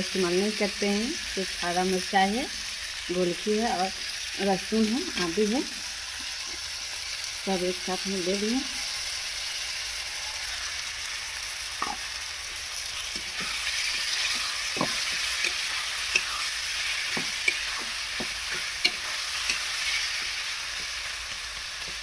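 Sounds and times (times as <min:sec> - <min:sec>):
vegetables sizzling in a pan: 0:00.0 - 0:22.0
metal spatula scraping a pan: 0:13.0 - 0:21.0.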